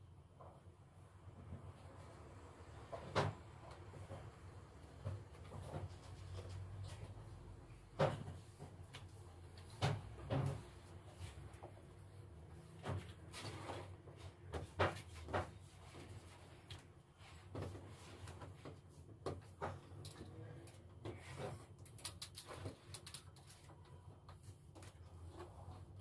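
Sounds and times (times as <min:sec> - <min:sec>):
knocks and clunks from cleaning: 0:09.7 - 0:10.8.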